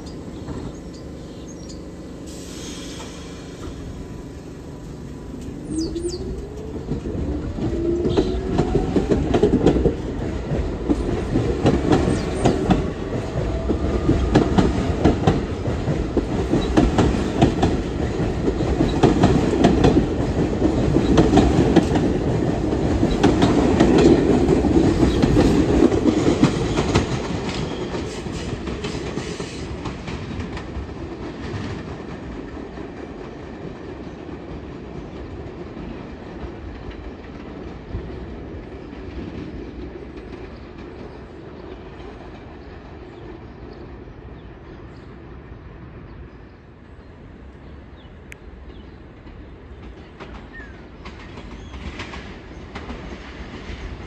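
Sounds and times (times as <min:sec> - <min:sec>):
subway train motor whine: 0:00.0 - 0:30.0
train wheels clattering over rail joints: 0:02.7 - 0:43.2, 0:48.6 - 0:54.0.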